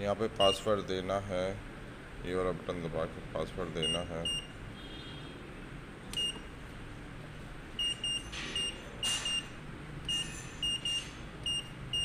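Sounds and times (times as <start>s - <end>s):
keypad beeps: 3.8s - 4.5s, 6.1s - 6.5s, 7.8s - 12.0s.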